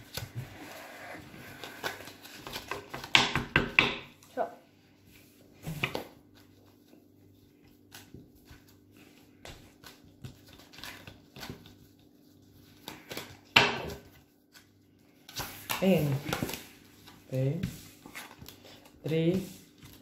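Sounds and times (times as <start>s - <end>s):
playing cards shuffling: 0.0s - 3.1s, 7.6s - 20.0s.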